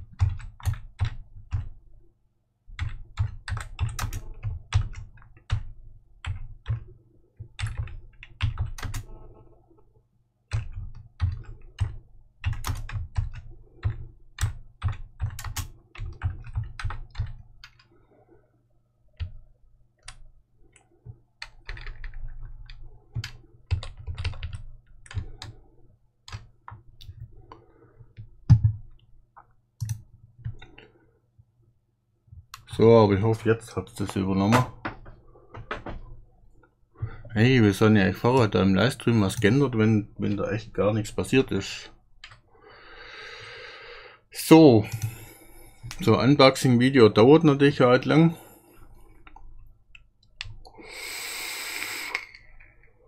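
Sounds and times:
typing on computer keyboard: 0.0s - 1.8s, 2.7s - 9.2s, 10.5s - 17.9s, 21.4s - 25.6s, 29.8s - 30.9s.

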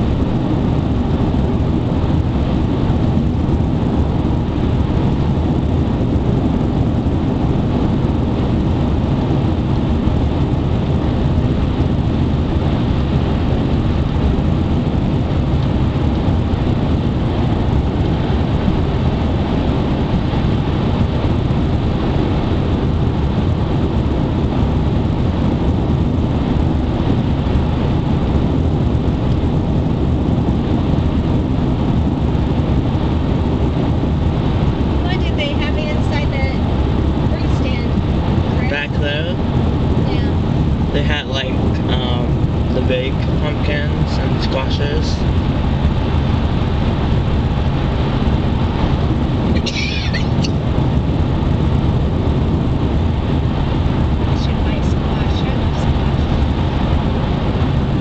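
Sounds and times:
road and wind noise in car: 0.0s - 58.0s.

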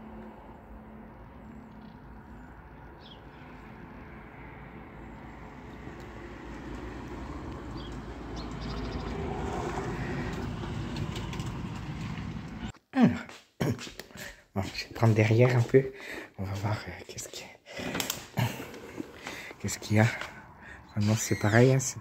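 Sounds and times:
motor vehicle approaching: 0.0s - 12.7s, 18.3s - 21.2s
bird chirping: 7.7s - 9.3s.

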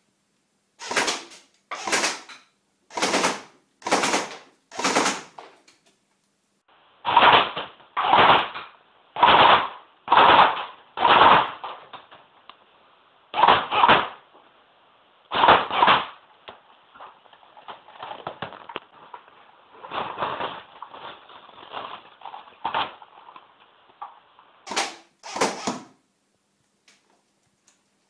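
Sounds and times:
airsoft rifle firing bursts: 0.8s - 5.5s, 7.1s - 8.6s, 9.2s - 11.6s, 24.7s - 25.9s.

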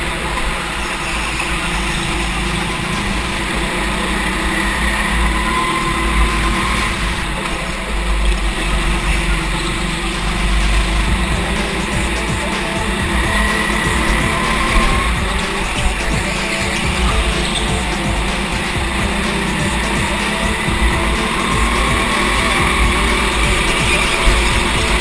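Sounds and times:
go-kart engine running: 0.0s - 25.0s.

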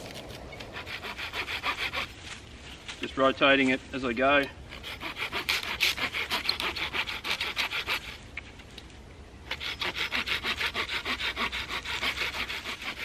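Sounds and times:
hand saw cutting wood: 0.2s - 2.2s, 4.7s - 8.2s, 9.5s - 13.0s.

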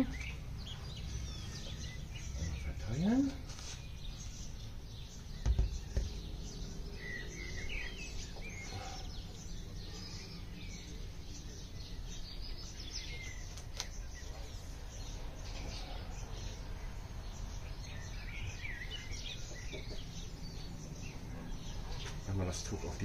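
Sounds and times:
songbirds chirping: 0.0s - 23.0s.

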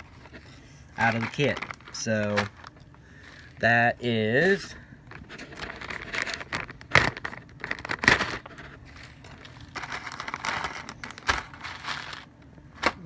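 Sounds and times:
small metal parts clinking: 1.0s - 2.7s, 5.3s - 12.3s.

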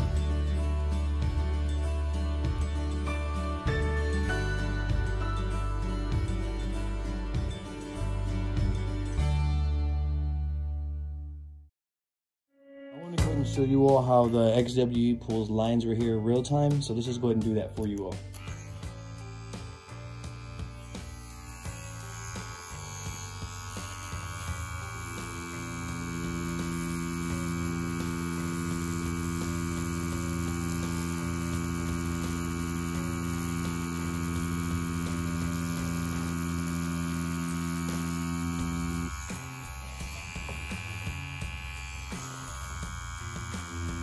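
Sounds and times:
tattoo machine humming: 18.2s - 44.0s.

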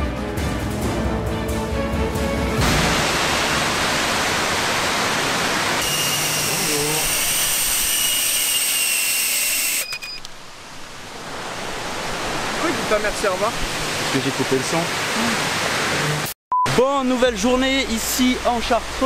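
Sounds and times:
loud rushing noise: 2.2s - 5.8s
drone motors whining: 5.8s - 10.3s.

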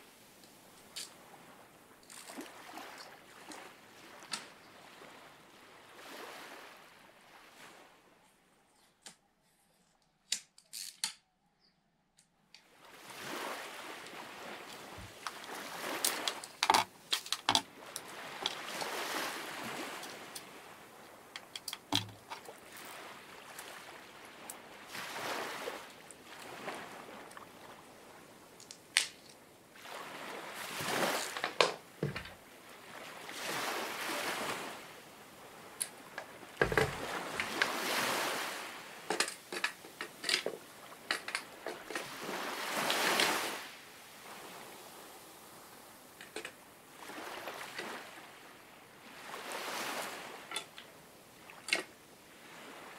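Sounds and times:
water sloshing: 0.8s - 6.7s, 12.8s - 44.4s.

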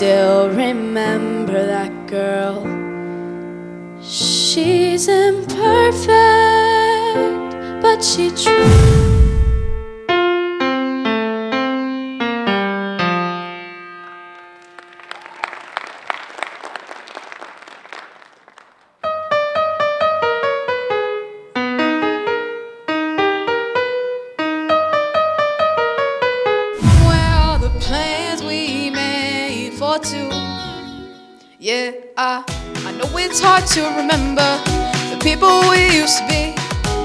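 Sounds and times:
electronic keyboard piano melody: 10.0s - 15.0s, 19.1s - 26.8s, 32.5s - 37.0s
people clapping: 14.0s - 19.0s.

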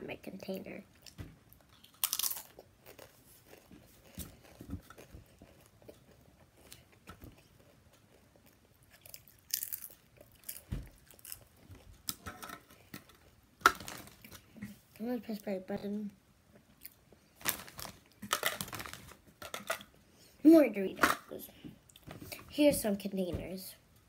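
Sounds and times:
chips being chewed crunching: 1.0s - 12.2s, 16.8s - 20.0s.

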